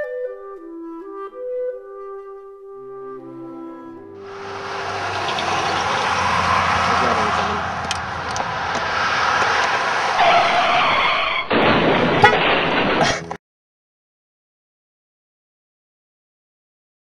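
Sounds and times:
pickup truck driving past: 4.2s - 11.4s.

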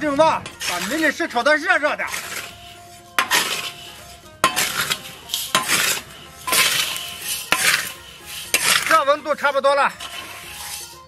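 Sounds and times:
gravel stones scraping in wok: 0.0s - 11.0s.

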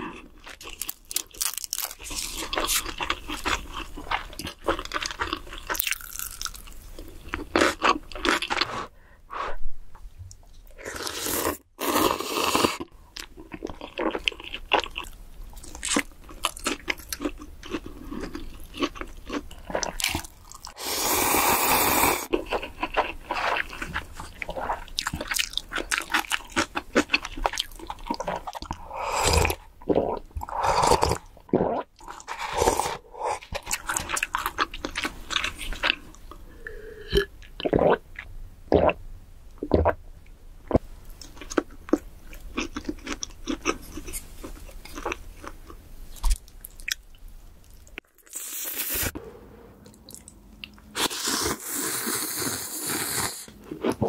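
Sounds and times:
crunchy bites and chewing: 0.4s - 8.7s.

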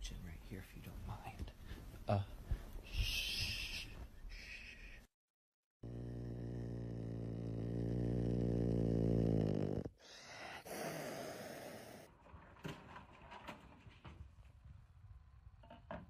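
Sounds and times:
low buzzing snore: 5.8s - 12.1s.

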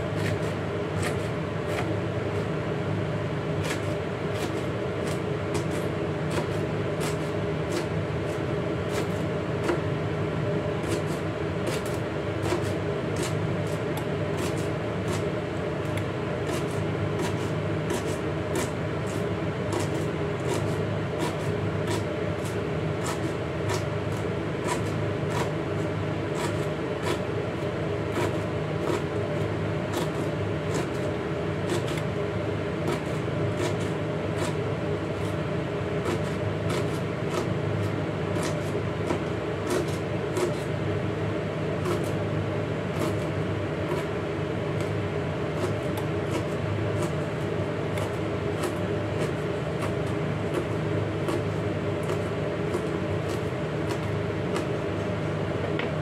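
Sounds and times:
steady background hum: 0.0s - 56.0s
knife chopping on cutting board: 0.2s - 2.0s, 3.6s - 9.9s, 10.8s - 25.6s, 26.3s - 27.3s, 28.1s - 29.1s, 29.9s - 31.0s, 31.6s - 32.1s, 32.8s - 35.4s, 36.0s - 37.5s, 38.4s - 40.7s, 41.8s - 42.2s, 45.6s - 47.3s, 47.9s - 54.7s.

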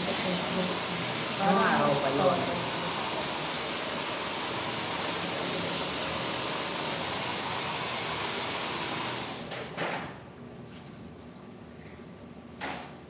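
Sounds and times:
hair dryer blowing air: 0.0s - 9.5s.

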